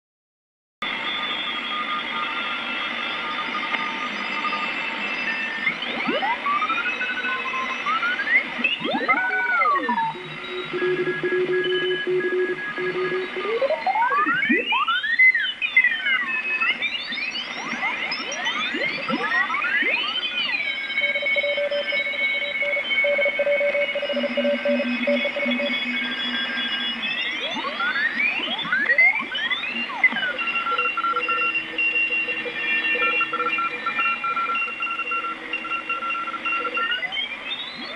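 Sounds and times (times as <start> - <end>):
morse code beeping tones: 8.8 - 14.7, 18.2 - 37.9.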